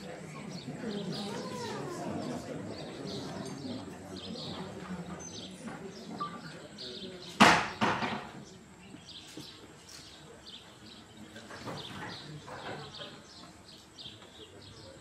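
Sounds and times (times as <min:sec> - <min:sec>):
sharp knocks: 0:07.4 - 0:08.3.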